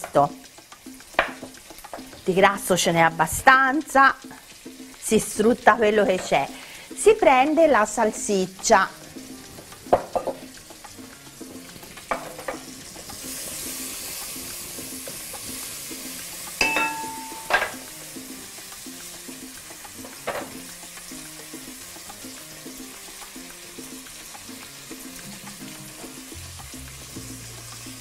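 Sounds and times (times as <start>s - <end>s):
meat sizzling in a frying pan: 0.0s - 28.0s
soft background music: 0.0s - 28.0s
sharp knocks and clinks: 16.6s - 17.8s.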